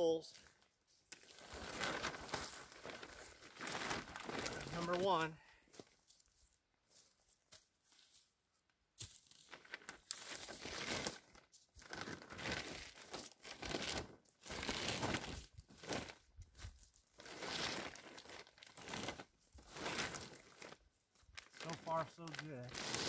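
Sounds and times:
plastic bag crinkling on wooden poles: 0.0 - 8.3, 9.0 - 23.0.

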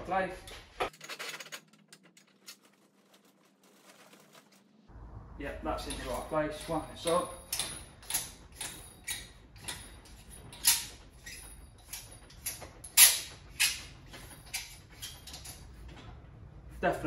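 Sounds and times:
squeaking of threaded part turning: 6.0 - 16.1.

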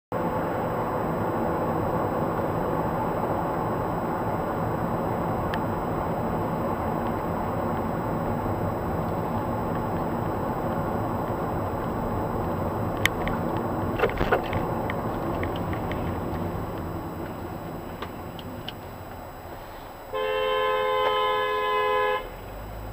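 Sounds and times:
car engine and tyre noise: 0.1 - 22.9.

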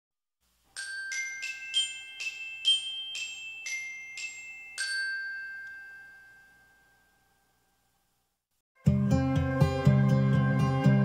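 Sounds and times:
glockenspiel chime melody: 0.7 - 7.8.

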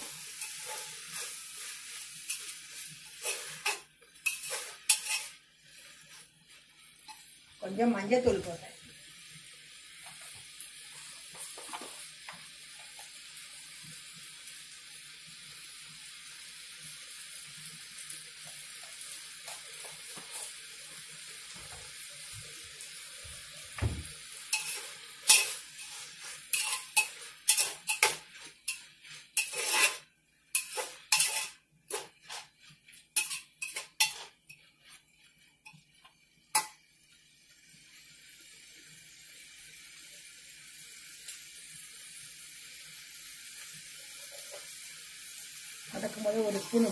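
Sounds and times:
metal spoon scraping a pot: 0.0 - 6.2, 24.5 - 35.8
vegetables sizzling in a pot: 0.0 - 46.9.

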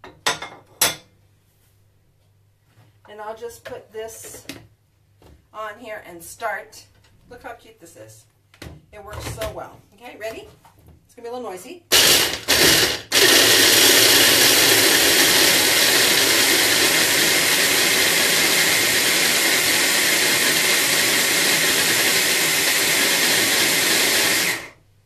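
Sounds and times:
electric blender chopping nuts: 11.9 - 24.8.

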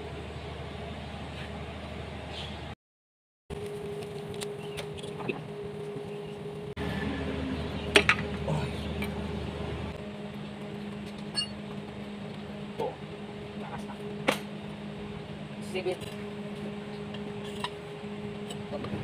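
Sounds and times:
steady hum: 3.5 - 19.0.

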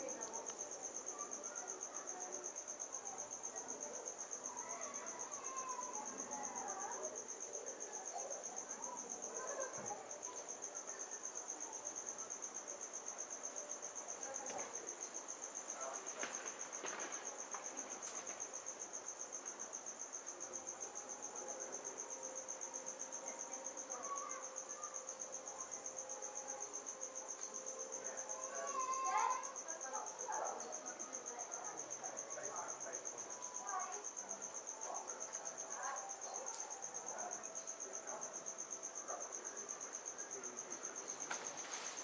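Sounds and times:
faint background sounds: 0.0 - 42.0
insect trilling: 4.4 - 7.0, 20.6 - 42.0.

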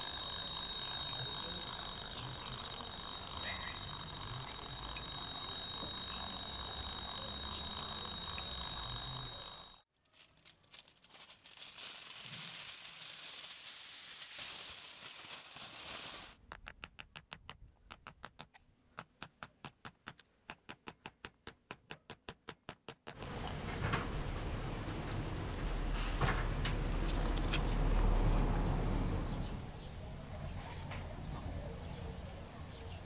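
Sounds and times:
aluminium foil crinkling: 9.9 - 16.4.

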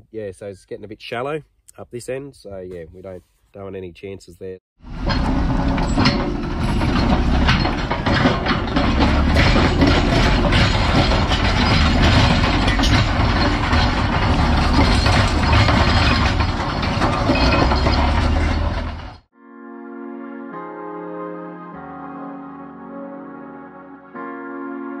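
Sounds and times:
bulldozer diesel engine under load: 4.8 - 19.3
bulldozer ripping rock: 4.9 - 19.2.

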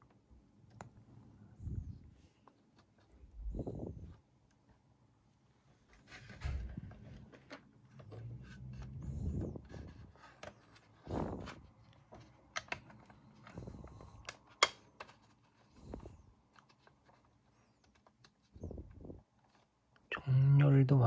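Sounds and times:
plastic rubbing: 5.6 - 19.8
plastic parts clicking and tapping: 12.0 - 15.7.

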